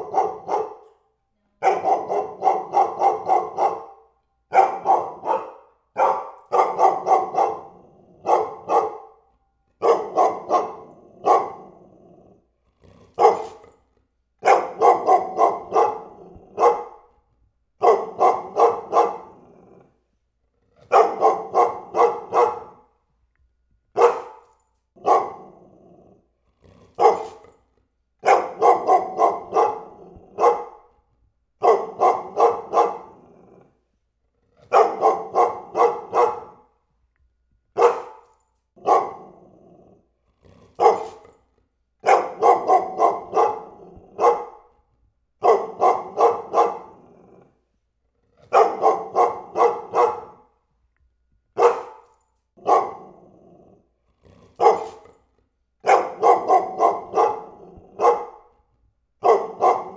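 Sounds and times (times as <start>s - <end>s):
dog barking deeply: 0.0s - 0.9s, 1.6s - 9.2s, 9.8s - 12.3s, 13.2s - 13.6s, 14.4s - 17.1s, 17.8s - 20.0s, 20.9s - 22.8s, 24.0s - 24.4s, 25.0s - 26.1s, 27.0s - 27.4s, 28.2s - 30.9s, 31.6s - 33.7s, 34.7s - 36.7s, 37.8s - 38.2s, 38.8s - 39.9s, 40.8s - 41.2s, 42.0s - 44.7s, 45.4s - 47.6s, 48.5s - 50.6s, 51.6s - 52.0s, 52.6s - 53.7s, 54.6s - 55.0s, 55.8s - 58.5s, 59.2s - 59.9s.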